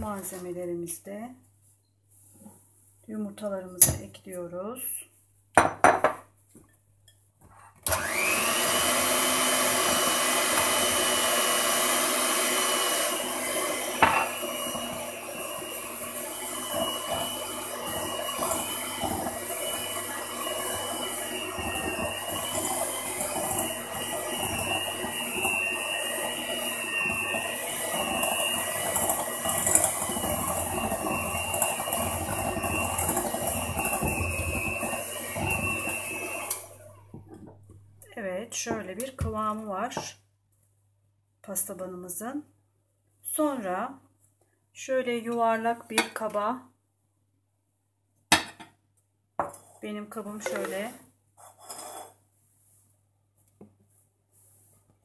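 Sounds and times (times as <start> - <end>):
electric hand mixer whining: 7.8 - 37.8.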